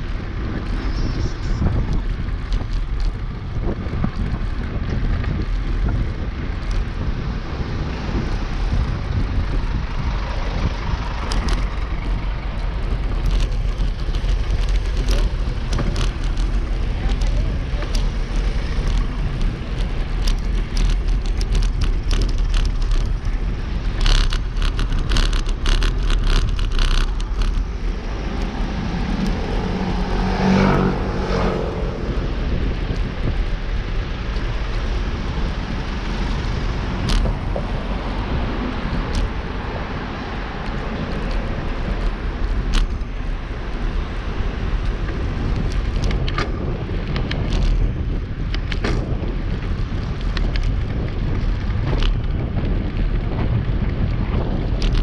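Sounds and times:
motor vehicle passing close: 0.0 - 55.0
road traffic: 0.0 - 55.0
wind rumble on microphone: 0.0 - 55.0
rattling clicks: 11.2 - 29.4, 37.0 - 37.8.

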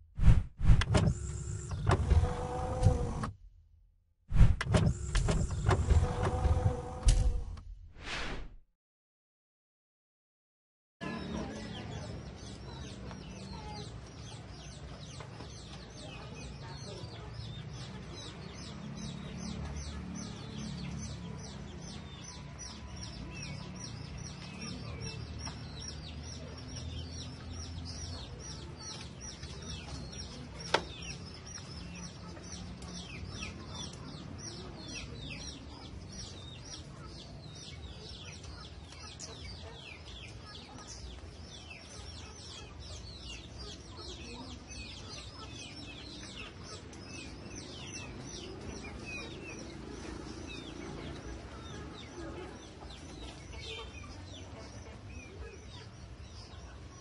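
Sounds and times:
sharp click: 0.3 - 2.0
birds chirping and clucking: 11.0 - 56.9.

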